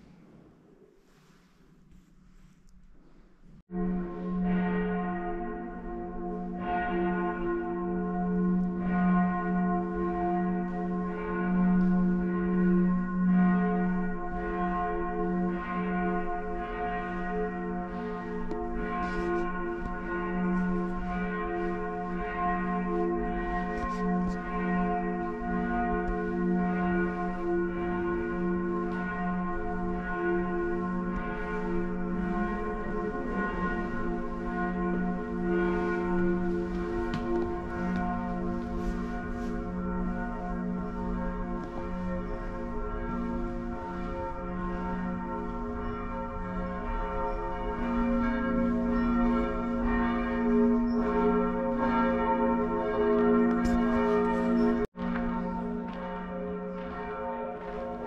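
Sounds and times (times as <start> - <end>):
church bells ringing: 3.7 - 58.0.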